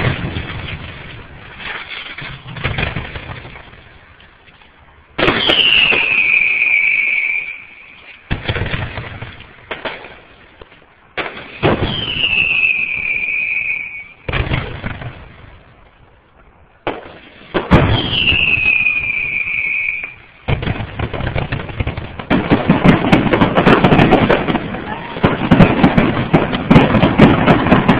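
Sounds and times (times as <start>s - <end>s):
firework bangs: 0.0s - 27.9s
firework pops and crackling: 0.0s - 27.9s
firework whistle sliding down: 5.2s - 8.2s, 11.8s - 14.3s, 17.8s - 20.2s.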